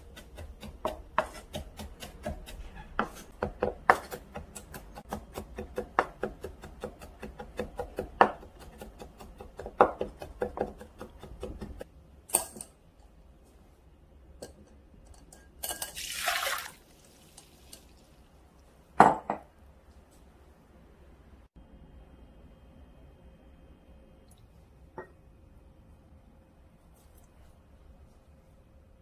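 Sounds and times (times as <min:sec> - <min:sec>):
knife chopping on wooden board: 0:00.0 - 0:11.8
water splashing in a bowl: 0:15.9 - 0:18.0.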